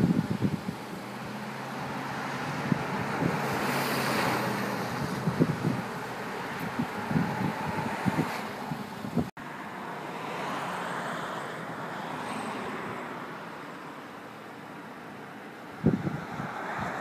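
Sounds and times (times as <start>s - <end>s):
wind buffeting microphone: 0.0s - 9.3s, 15.7s - 17.0s
passing vehicle road noise: 0.0s - 17.0s.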